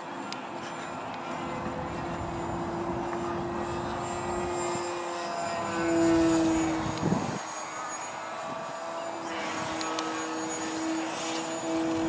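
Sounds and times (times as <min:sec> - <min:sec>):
model plane motor whining: 0:00.7 - 0:12.0
low rumble: 0:01.5 - 0:04.6.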